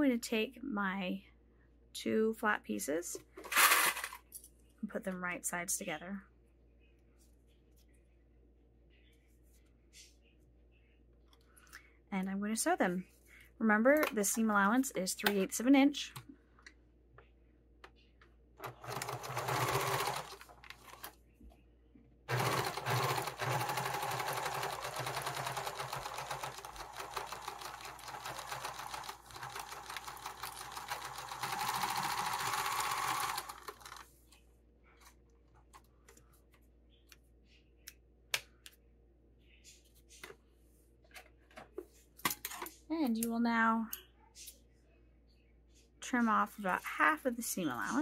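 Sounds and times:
sewing machine stitching: 18.6s - 21.1s, 22.3s - 34.0s.

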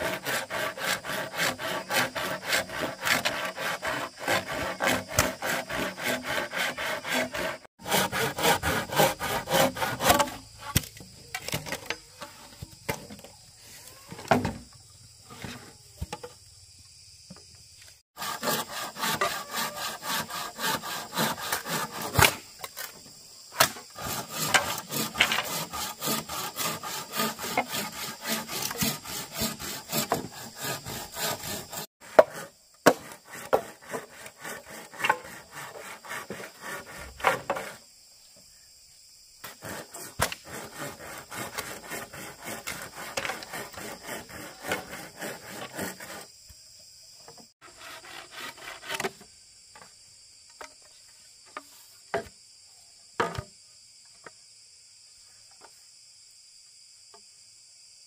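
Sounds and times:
saw cutting bamboo: 0.0s - 10.9s, 18.2s - 22.5s, 23.6s - 37.8s, 39.4s - 46.3s, 47.6s - 49.2s.

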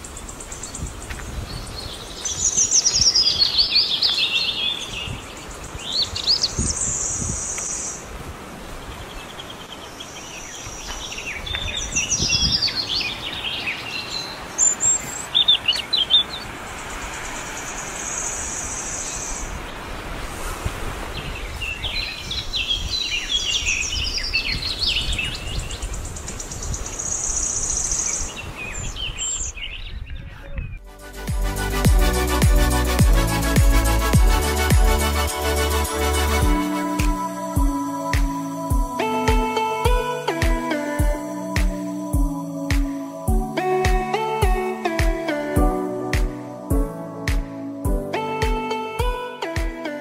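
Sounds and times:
wild birds chirping: 0.0s - 30.8s
electronic music: 30.8s - 50.0s
steady high buzz: 30.8s - 50.0s.

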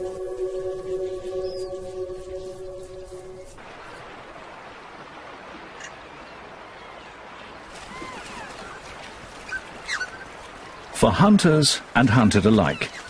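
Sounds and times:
river water rushing: 2.7s - 13.0s
elk splashing through water: 3.6s - 12.0s.

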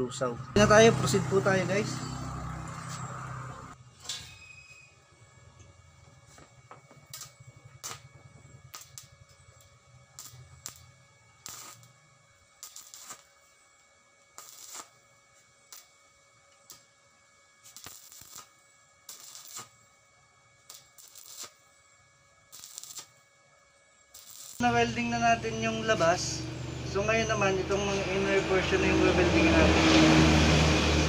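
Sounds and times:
welding arc crackling: 5.0s - 29.0s.

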